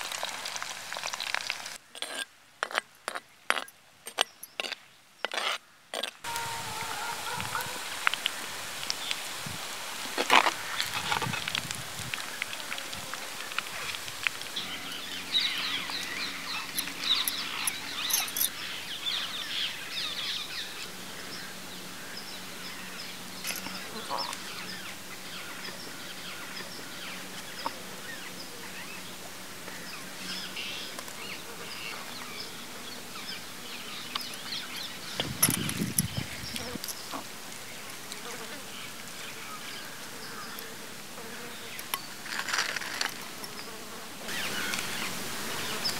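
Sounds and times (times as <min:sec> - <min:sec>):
birds chirping: 0:13.4 - 0:37.9, 0:43.5 - 0:45.9.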